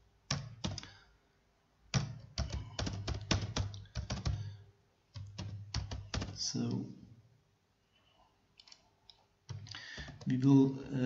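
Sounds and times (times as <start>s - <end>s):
typing on computer keyboard: 0.3s - 1.0s, 1.9s - 6.5s, 9.5s - 10.4s.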